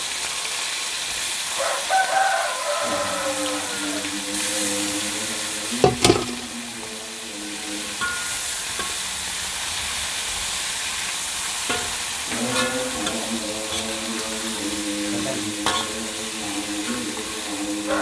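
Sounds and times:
food sizzling in hot oil: 0.0 - 18.0
metal spatula scraping wok: 5.8 - 6.5, 11.7 - 16.1.

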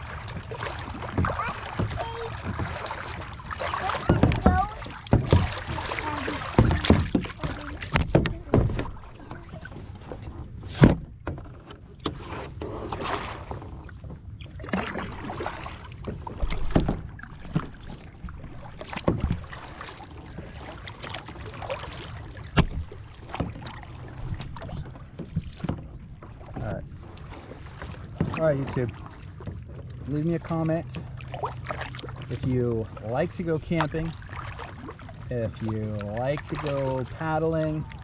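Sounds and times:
paddle splashing through water: 0.0 - 38.0
knocks and thumps: 1.1 - 2.8, 3.8 - 9.4, 22.5 - 23.7.

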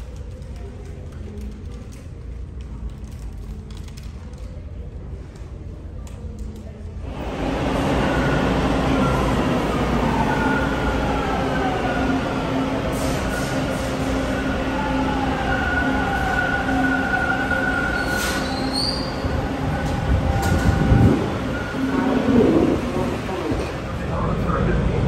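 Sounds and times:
train wheel rumble: 6.5 - 25.0.

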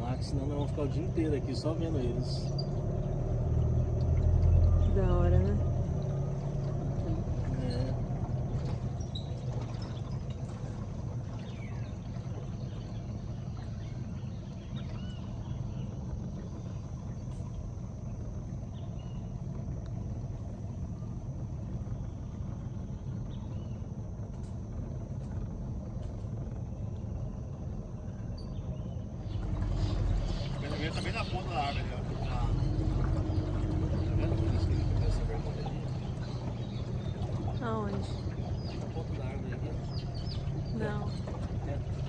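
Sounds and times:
boat motor humming: 0.0 - 42.0
faint bird chirps: 7.1 - 17.6, 18.6 - 19.4.

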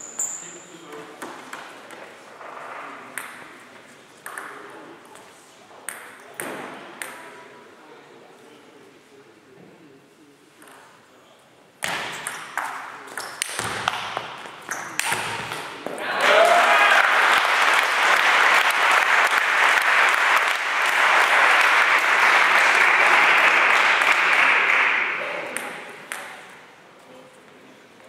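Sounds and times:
crowd applauding and cheering: 16.1 - 25.3.

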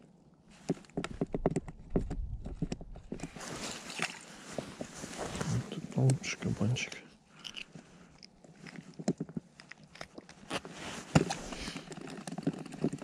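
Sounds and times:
clothing rustling: 3.0 - 6.8, 10.0 - 13.0
snow crunching: 3.3 - 6.8, 10.5 - 11.8.

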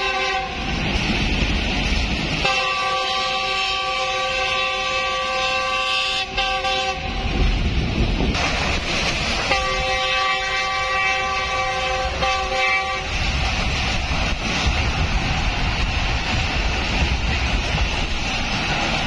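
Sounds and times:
locomotive horn blasts: 0.0 - 0.7, 2.4 - 7.3, 9.5 - 13.1
train rumbling and clattering: 0.0 - 19.0.

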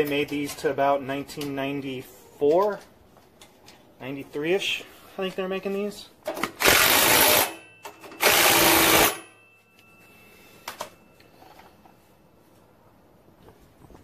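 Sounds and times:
impact driver bursts: 6.4 - 9.2.

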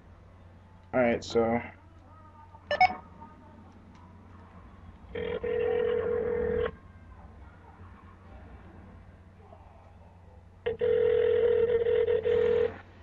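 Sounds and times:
phone ringback tone: 2.7 - 3.0, 10.7 - 12.8.

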